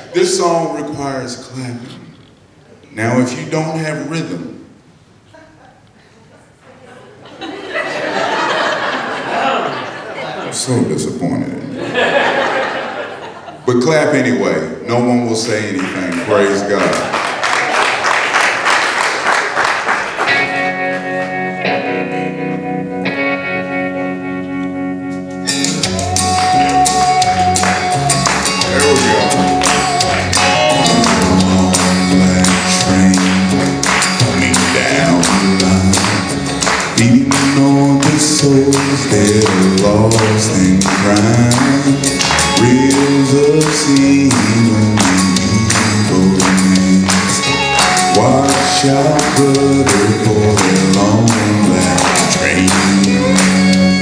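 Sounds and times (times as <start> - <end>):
instrumental gospel accompaniment: 7.3 - 54.0
male vocal group singing: 26.6 - 47.4, 48.1 - 53.8.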